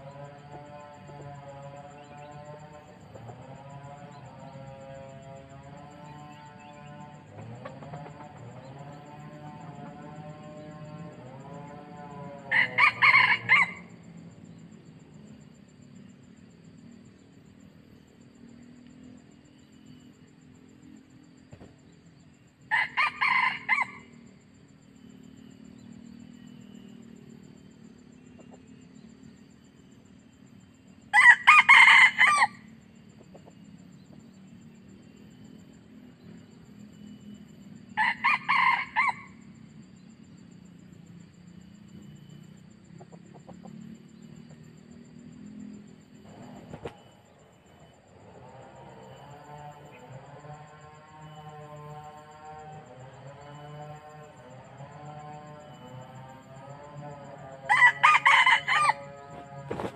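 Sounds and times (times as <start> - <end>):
faint low hum: 0.0 - 59.9
rooster crowing: 12.5 - 14.0, 22.7 - 24.1, 31.1 - 32.7, 37.9 - 39.4, 57.6 - 59.9.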